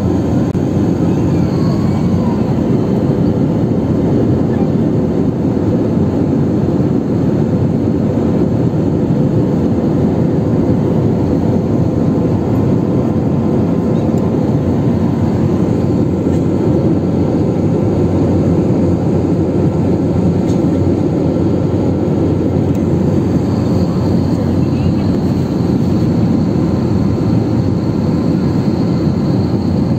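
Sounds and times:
airliner cabin rushing hum: 0.0 - 29.9.

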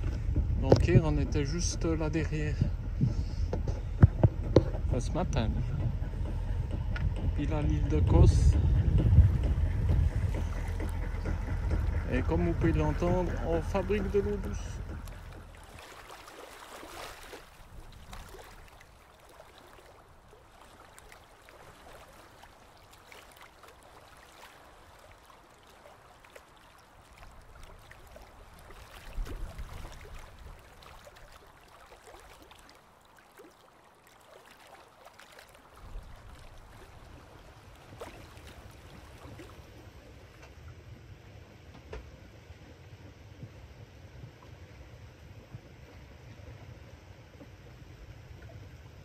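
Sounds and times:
watermaker running: 0.0 - 15.8
low rumble: 0.0 - 16.2.

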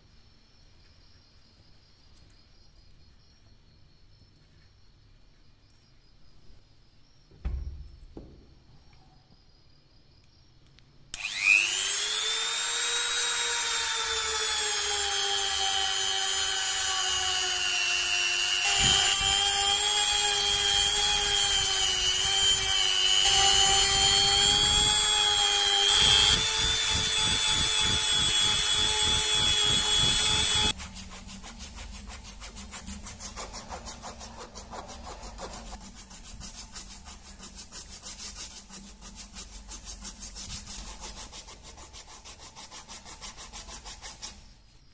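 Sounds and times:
rotary tool whining: 11.1 - 30.8
sanding drum grinding metal: 11.3 - 44.4.

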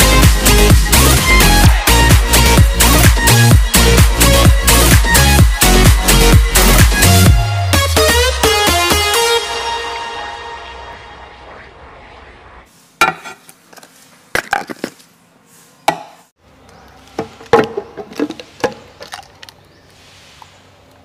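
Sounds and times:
small scrapes: 12.7 - 15.9, 17.9 - 20.8.

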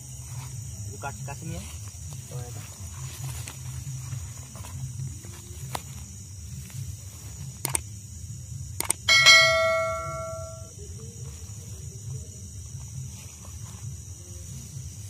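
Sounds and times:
sharp clicks: 7.6 - 7.8, 8.8 - 9.3
bell-like ding: 9.1 - 10.7.

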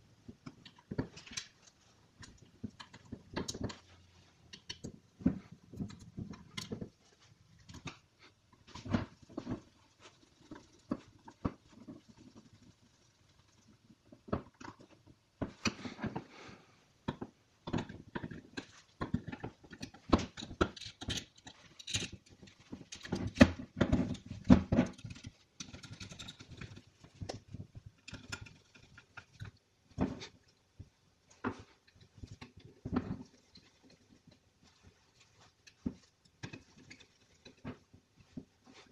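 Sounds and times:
small parts tapping: 17.1 - 29.6.

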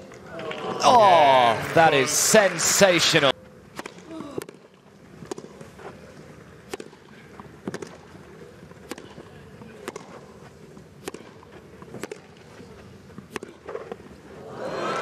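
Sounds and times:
tennis ball hit by rackets: 3.7 - 5.7, 6.6 - 7.0, 7.6 - 8.0, 8.8 - 10.3, 11.0 - 12.5, 13.2 - 14.0.

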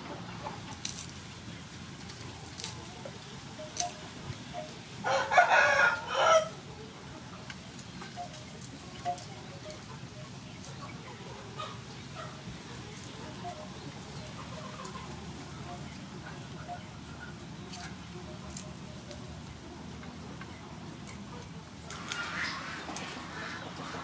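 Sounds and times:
hens clucking: 0.0 - 24.0
knife peeling garlic clicks: 0.8 - 1.1, 2.5 - 2.8, 3.7 - 4.0
rooster crowing: 5.0 - 6.6.

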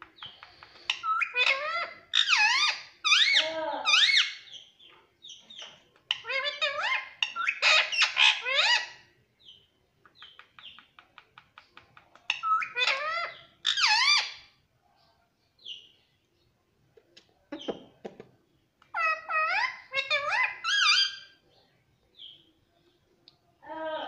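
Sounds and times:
parakeet chattering: 6.1 - 9.0, 10.2 - 14.5, 18.8 - 21.3.

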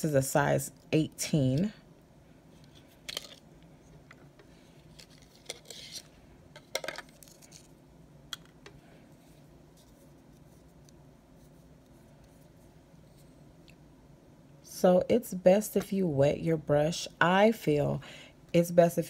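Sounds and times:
objects set down on tray: 6.6 - 7.6.

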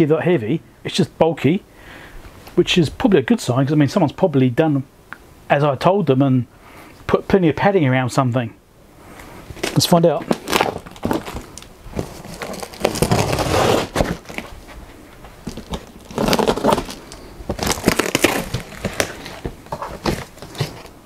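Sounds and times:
cardboard flaps crackling: 9.4 - 21.0
packing tape tearing: 9.6 - 14.5, 15.5 - 20.9.

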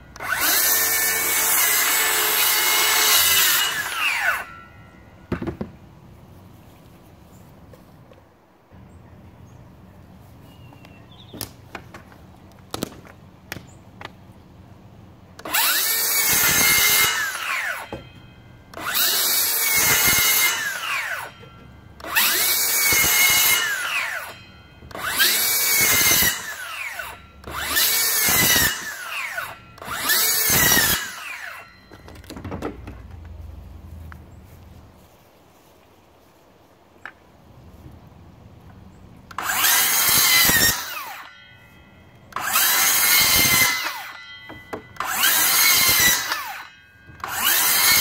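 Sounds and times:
circular saw cutting wood: 0.0 - 4.8, 15.4 - 32.3, 39.3 - 41.5, 42.3 - 48.0.

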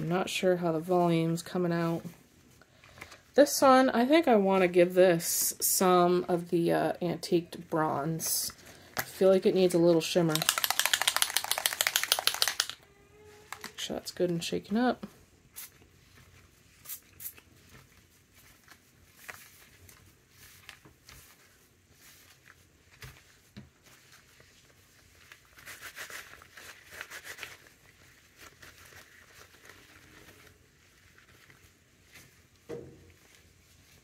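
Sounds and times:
ribbon rustling and squishing: 7.6 - 34.0.

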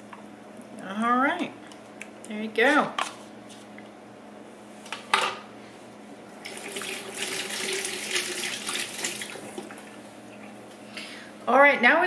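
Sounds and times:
faucet running into sink: 6.4 - 9.9.

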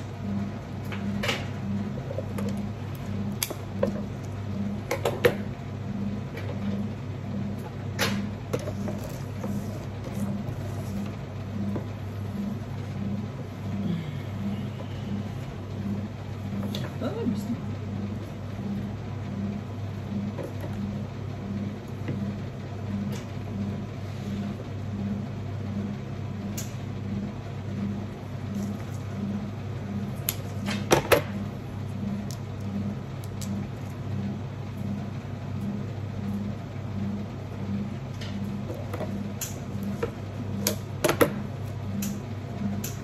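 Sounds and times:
pulsing low machine hum: 0.0 - 43.0
scissors clicking and stems snapping: 42.8 - 43.0.

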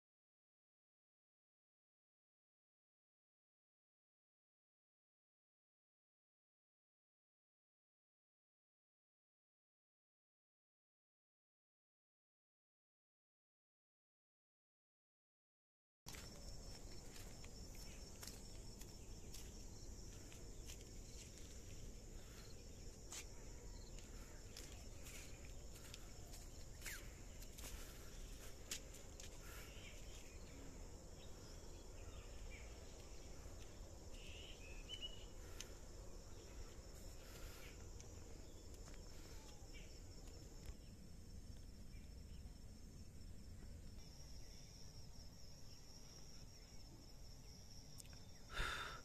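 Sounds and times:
insects trilling: 16.1 - 49.0
bird chirps: 34.1 - 35.6.

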